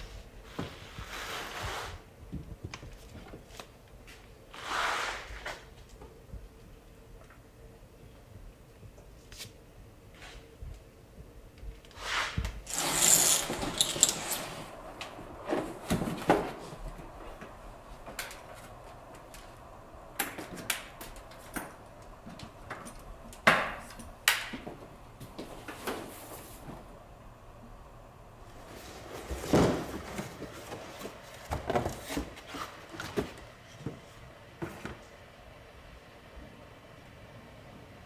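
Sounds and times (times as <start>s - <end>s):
rustling scrape: 0.0s - 2.1s, 4.5s - 5.7s, 12.0s - 14.8s
tools clicking and knocking: 12.7s - 14.6s.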